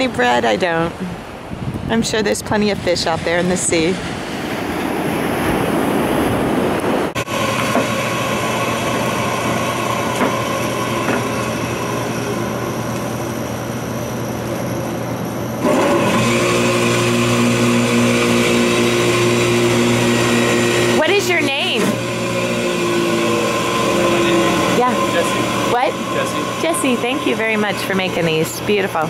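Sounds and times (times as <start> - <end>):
surf washing on a beach: 0.0 - 7.6
electric juicer humming: 7.2 - 13.6, 15.6 - 29.0.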